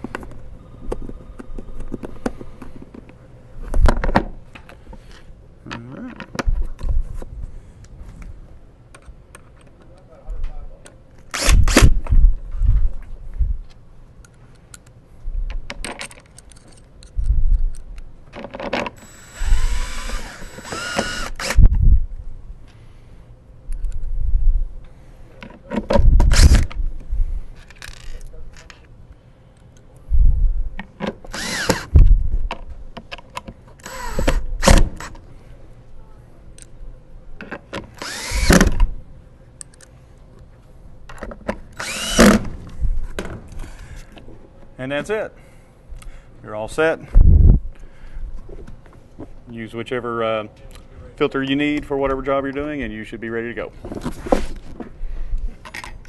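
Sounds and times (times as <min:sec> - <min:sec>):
cordless drill driving screws: 0:11.3 - 0:12.0, 0:19.0 - 0:21.6, 0:31.3 - 0:32.0, 0:33.8 - 0:35.1, 0:38.0 - 0:38.8, 0:41.8 - 0:42.5.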